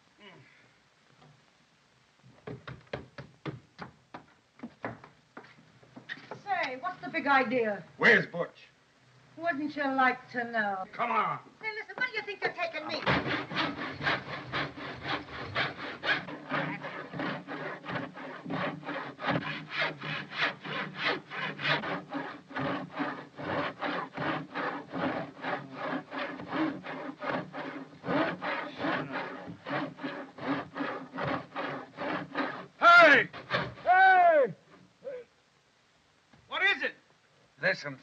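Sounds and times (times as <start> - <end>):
hand drill rasping into wood: 13.0 - 33.9.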